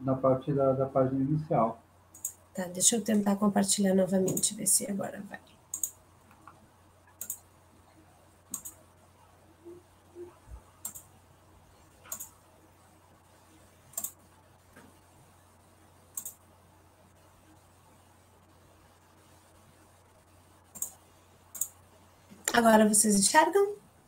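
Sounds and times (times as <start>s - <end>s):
faint low hum: 0.0s - 24.0s
computer mouse clicking: 2.1s - 2.4s, 4.2s - 4.5s, 5.7s - 7.5s, 8.5s - 8.8s, 10.8s - 11.1s, 12.0s - 12.4s, 13.9s - 14.2s, 16.1s - 16.4s, 20.7s - 21.8s.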